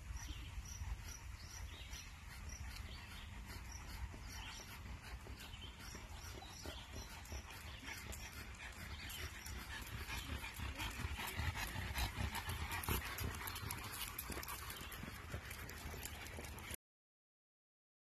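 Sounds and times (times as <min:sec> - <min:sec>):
dog sounds: 0:00.0 - 0:16.8
footsteps and paw steps on asphalt: 0:02.4 - 0:10.4, 0:11.3 - 0:16.8.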